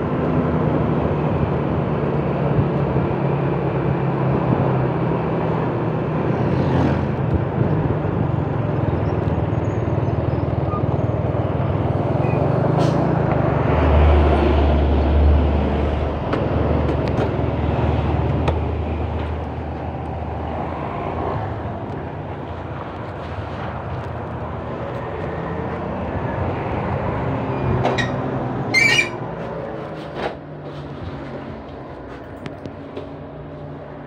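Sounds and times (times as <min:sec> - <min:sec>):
outdoor background noise: 0:00.0 - 0:34.0.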